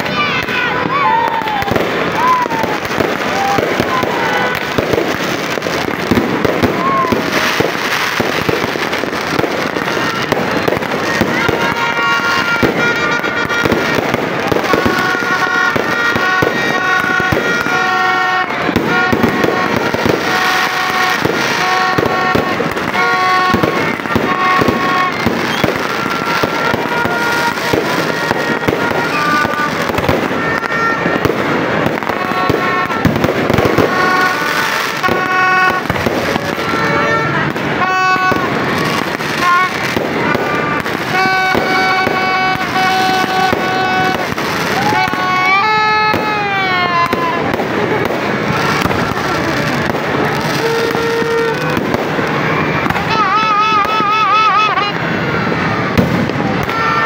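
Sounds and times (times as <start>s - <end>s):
fireworks bangs and crackling: 0.0s - 57.0s.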